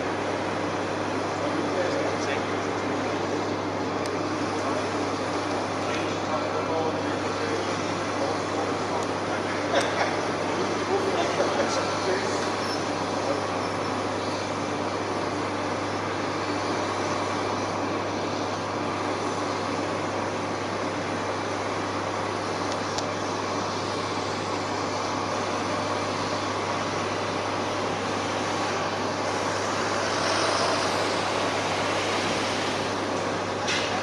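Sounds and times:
jet engines rumbling and whining: 0:00.0 - 0:34.0
truck passing by: 0:23.4 - 0:34.0.

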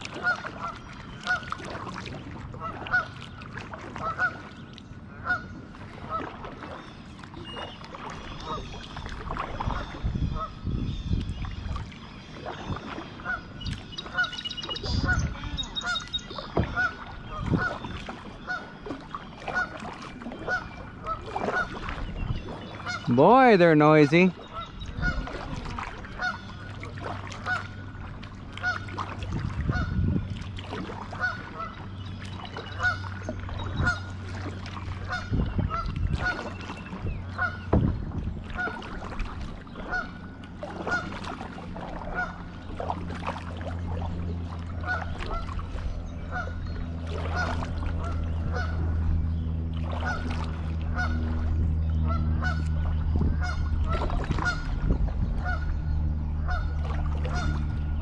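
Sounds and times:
steady low hum: 0:00.0 - 0:58.0
geese honking: 0:00.1 - 0:01.6, 0:02.6 - 0:03.2, 0:04.0 - 0:06.4, 0:09.6 - 0:10.6, 0:12.9 - 0:29.0, 0:29.6 - 0:30.0, 0:31.1 - 0:31.8, 0:32.5 - 0:37.7, 0:39.7 - 0:42.9, 0:44.8 - 0:57.9.

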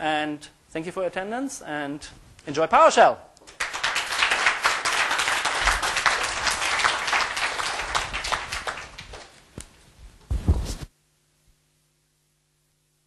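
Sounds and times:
audience applauding: 0:03.5 - 0:09.4.

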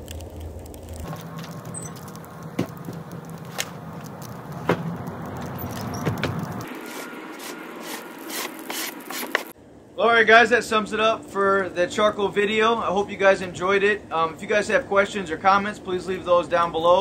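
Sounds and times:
steady low hum: 0:00.0 - 0:17.0
snow and charcoal swept across wood: 0:00.9 - 0:09.6
sharp knocks: 0:06.0 - 0:06.5.

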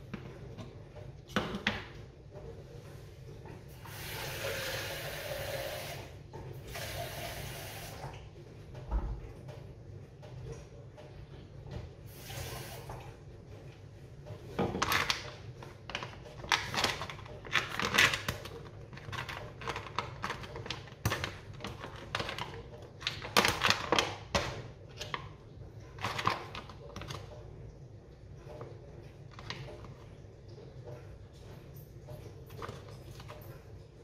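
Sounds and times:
paper packet crinkling and tearing: 0:14.8 - 0:24.3.

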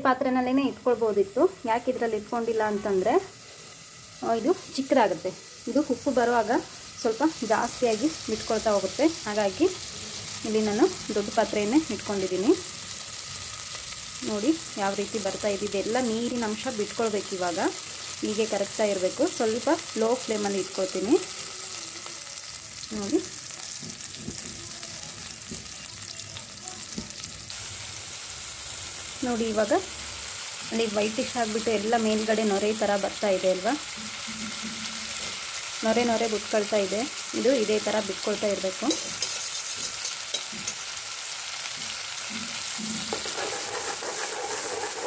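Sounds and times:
butter sizzling in pot: 0:00.0 - 0:45.0
metal spoon stirring: 0:38.8 - 0:40.9, 0:42.6 - 0:45.0.

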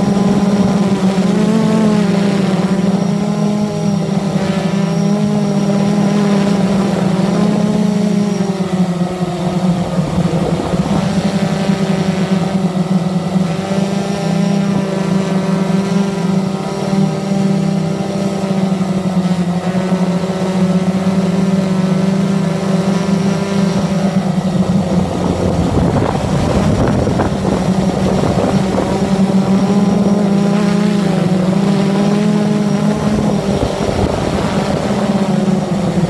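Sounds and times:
quadcopter propellers buzzing: 0:00.0 - 0:36.0.

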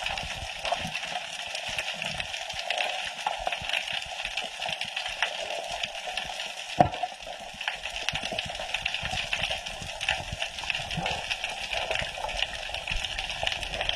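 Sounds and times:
small crackling clicks: 0:00.1 - 0:13.9
sharp underwater knock: 0:06.8 - 0:07.0.

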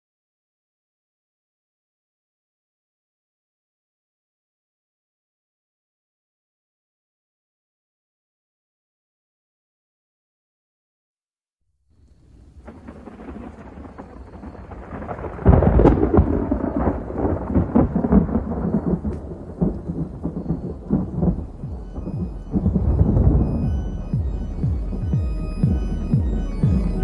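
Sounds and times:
rain: 0:12.0 - 0:27.0
rolling thunder: 0:12.2 - 0:27.0
faint electronic music: 0:19.9 - 0:27.0.

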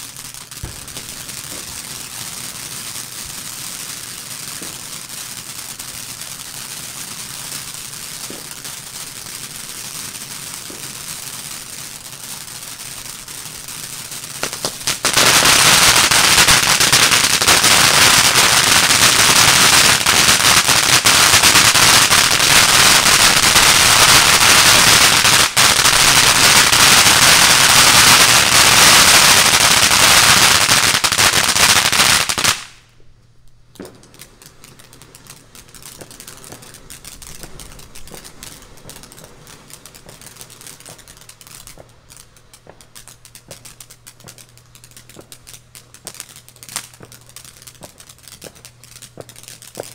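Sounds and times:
firework fountain hissing: 0:00.0 - 0:32.9, 0:33.8 - 0:49.9
firework fountain dense crackling: 0:00.0 - 0:49.9
scattered pops: 0:33.8 - 0:49.9.

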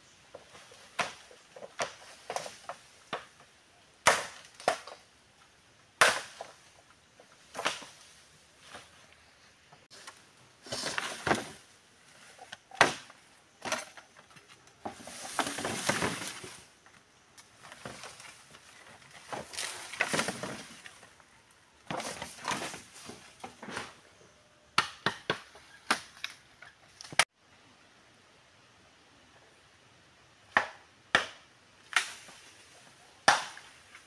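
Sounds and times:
rustling of dry leaves: 0:00.0 - 0:24.4, 0:31.7 - 0:34.0.

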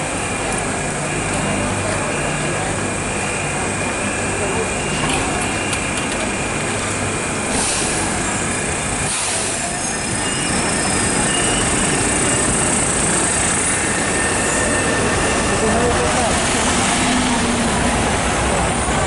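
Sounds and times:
tram wheels rolling on rails: 0:00.0 - 0:19.0
faint high wheel squeal: 0:09.0 - 0:16.3.

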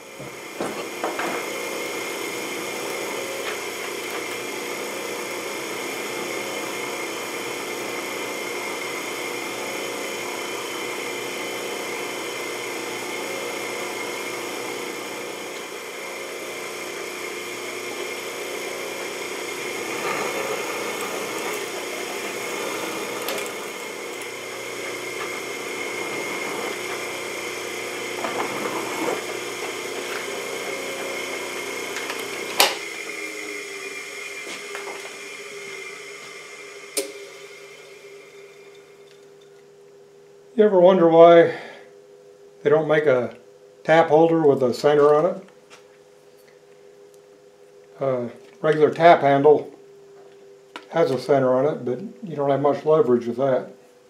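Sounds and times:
drill press drilling metal: 0:00.0 - 0:39.5.

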